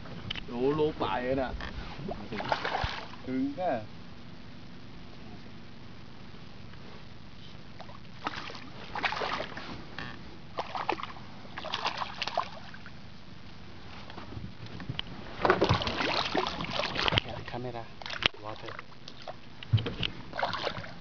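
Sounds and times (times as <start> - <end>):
steady low hum: 0.0 - 21.0
fish splashing in water: 8.2 - 9.6, 10.6 - 12.8, 15.6 - 17.2, 20.3 - 21.0.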